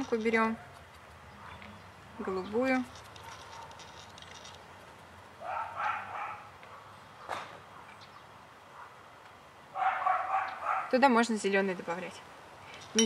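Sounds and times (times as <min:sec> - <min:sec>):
dog barking: 0:05.4 - 0:08.0, 0:08.7 - 0:09.0, 0:09.8 - 0:11.0.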